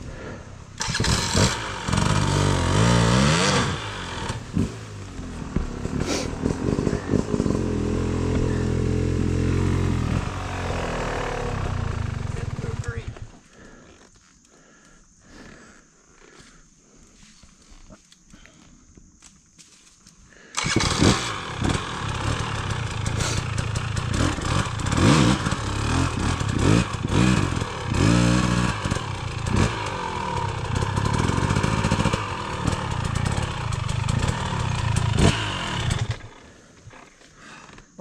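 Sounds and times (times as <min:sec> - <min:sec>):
dirt bike engine revving: 0:00.8 - 0:13.3, 0:20.6 - 0:37.0.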